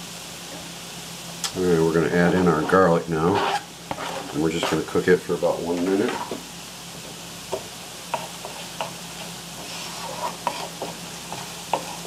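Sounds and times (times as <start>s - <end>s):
onions sizzling in a skillet: 0.0s - 12.0s
wooden spoon scraping a pan: 1.9s - 5.1s, 5.7s - 6.4s, 7.5s - 12.0s.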